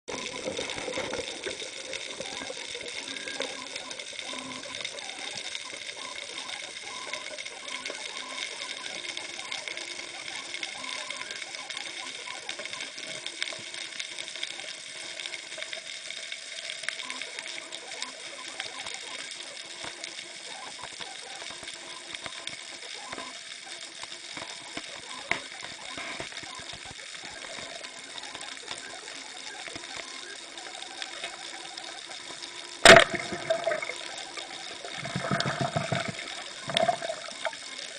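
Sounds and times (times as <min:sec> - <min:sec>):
small clicks and crackles: 0:00.0 - 0:37.9.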